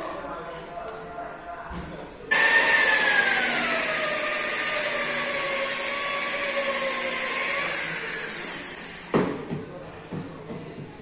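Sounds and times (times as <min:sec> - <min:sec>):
rotary polisher whining: 0:02.3 - 0:09.2.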